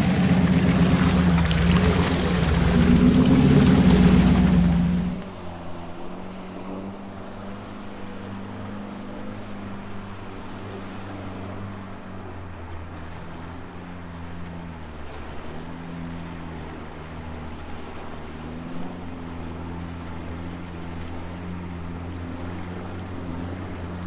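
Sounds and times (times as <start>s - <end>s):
off-road vehicle engine running: 0.0s - 5.3s.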